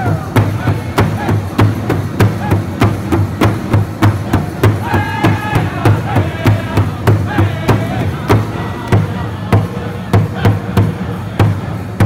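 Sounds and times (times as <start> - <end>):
large hide drum beating: 0.0 - 12.0
men singing in high voices: 4.6 - 11.4.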